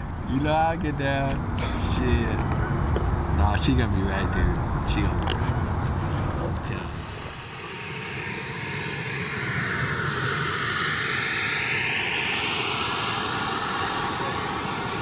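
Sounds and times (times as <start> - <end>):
model jet engine whine: 5.6 - 15.0.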